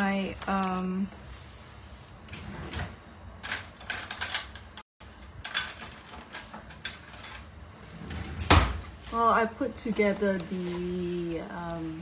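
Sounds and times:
kitchen clicks and rustles: 3.4 - 7.6.

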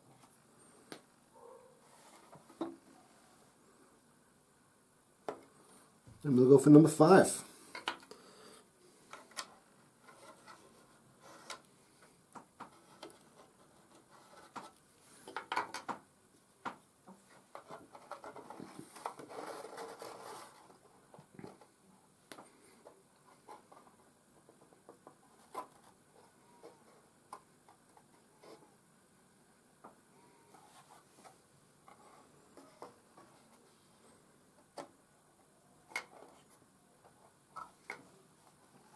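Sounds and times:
wood tapping and clicking on wood: 15.3 - 16.0
wood rubbing scrape: 17.2 - 21.6.

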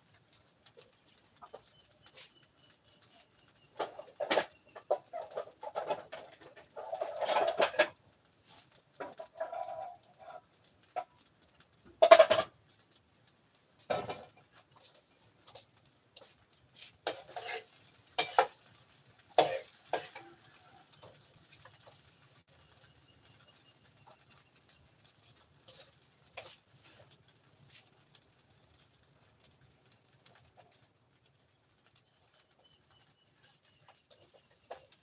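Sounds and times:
chickens clucking: 3.0 - 8.0.

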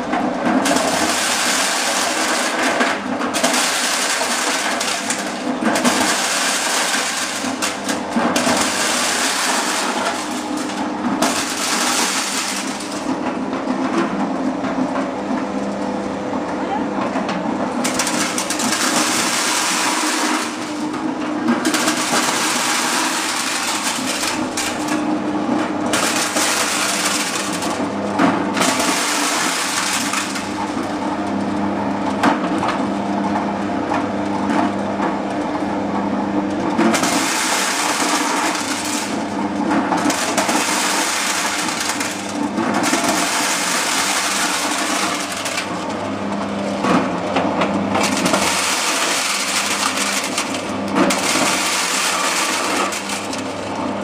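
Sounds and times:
corn sheller motor humming: 0.0 - 54.0
corn cobs rattling and crunching: 0.2 - 13.3, 17.8 - 31.0, 36.7 - 54.0.

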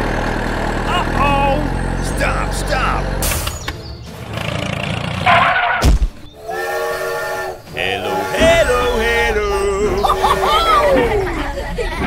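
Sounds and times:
low engine rumble: 0.0 - 5.4, 7.1 - 12.0
train whistle: 6.4 - 9.0
sliding-pitch voice-like sounds: 7.7 - 11.6.

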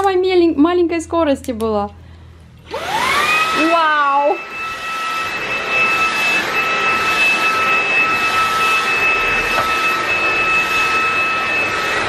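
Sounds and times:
vacuum cleaner on carpet: 2.6 - 12.0.

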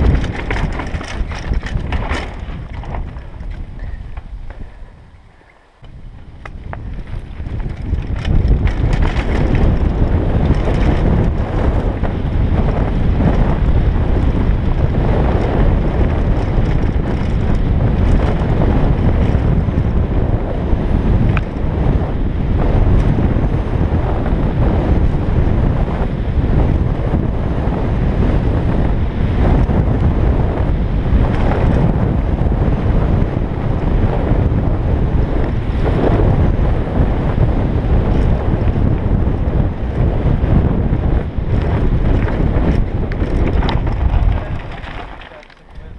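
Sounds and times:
stones clicking under wheels: 0.0 - 4.7, 5.8 - 19.7, 21.2 - 21.7, 41.4 - 45.9
bike tyre rumble and rattling: 0.0 - 45.9
wind buffeting microphone: 0.0 - 45.9.

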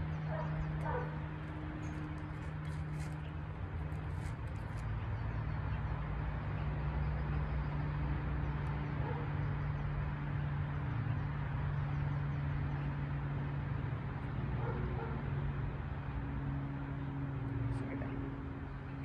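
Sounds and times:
low mechanical hum: 0.0 - 19.0.

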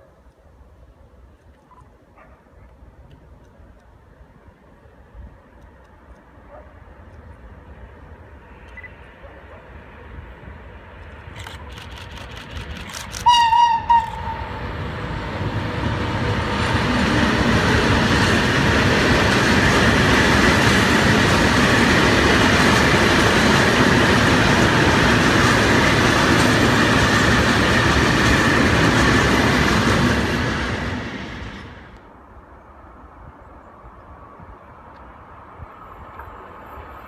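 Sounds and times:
freight train rolling on rails: 3.0 - 37.0
locomotive horn blasts: 13.2 - 14.6.

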